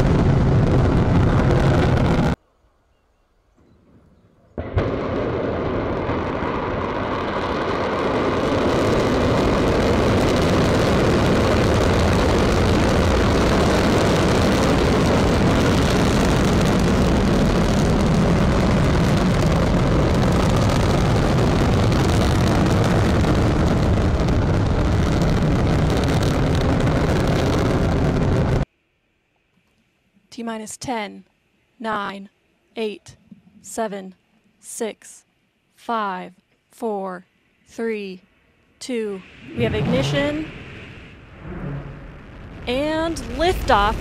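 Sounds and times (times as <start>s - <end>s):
rocket exhaust rumbling roar: 0.0s - 2.4s, 3.6s - 28.7s, 39.2s - 44.0s
rocket engine ignition blast: 3.9s - 28.7s, 39.2s - 44.0s.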